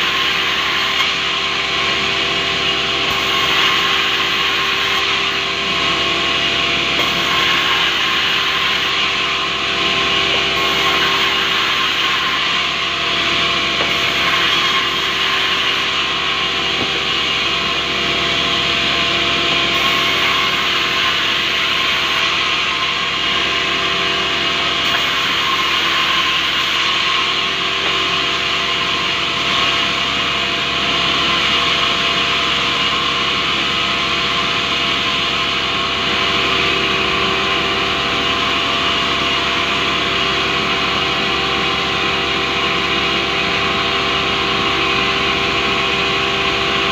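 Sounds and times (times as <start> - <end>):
band saw sawing wood: 3.1 - 17.8.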